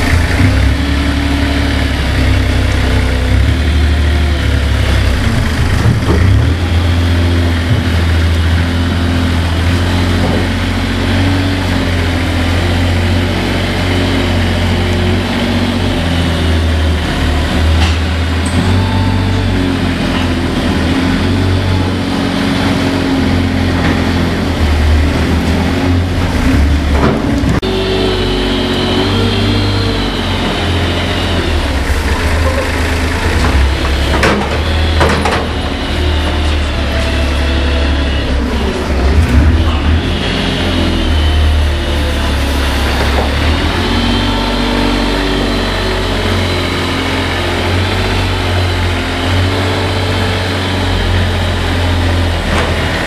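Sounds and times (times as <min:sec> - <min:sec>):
diesel engine running at low speed: 0:00.0 - 0:53.0.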